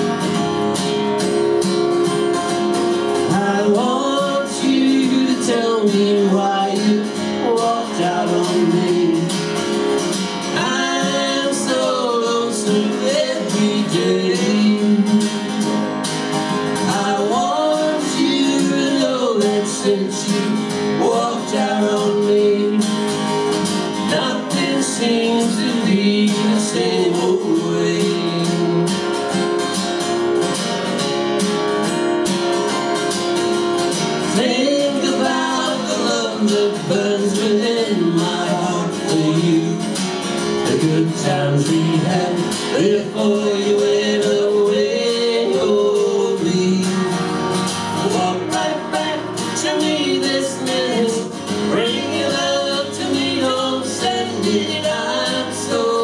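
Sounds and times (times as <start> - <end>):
strummed acoustic guitars: 0.0 - 56.0
men singing in harmony: 3.2 - 9.6, 10.4 - 15.7, 16.7 - 23.2, 24.0 - 29.0, 34.2 - 40.0, 40.6 - 47.4, 48.0 - 56.0.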